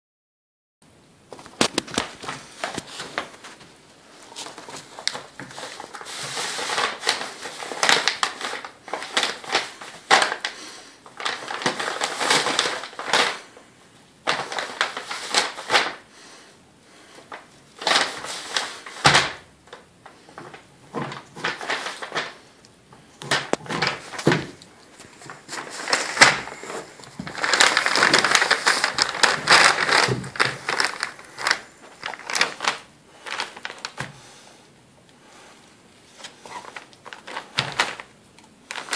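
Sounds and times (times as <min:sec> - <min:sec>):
paper crinkling: 0:01.3 - 0:16.0, 0:17.1 - 0:34.1, 0:36.0 - 0:38.9.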